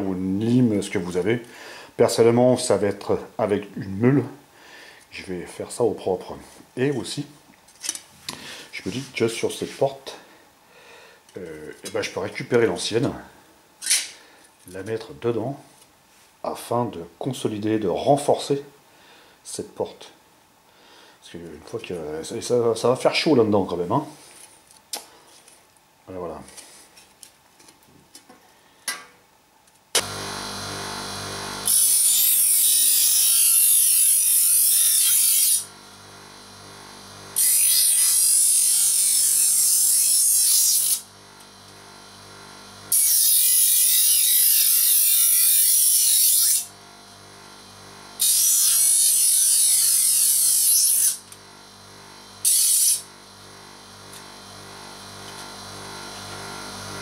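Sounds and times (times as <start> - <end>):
bench grinder running: 30.0 - 57.0.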